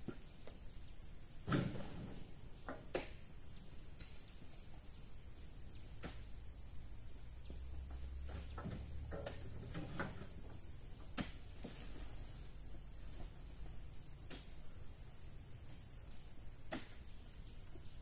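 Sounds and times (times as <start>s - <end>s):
knocks and rustles: 1.4s - 3.2s, 7.4s - 14.6s.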